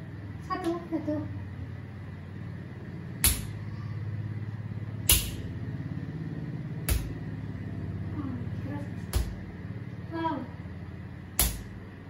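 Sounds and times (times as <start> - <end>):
steady low hum: 0.0 - 12.0
fist punches on bare stomach: 6.9 - 7.2, 11.4 - 11.7.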